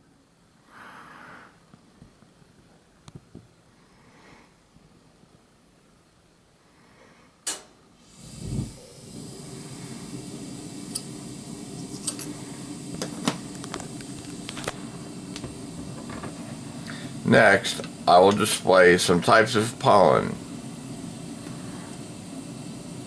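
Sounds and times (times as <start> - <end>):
sharp click: 7.4 - 7.7
steady low hum: 7.9 - 23.0.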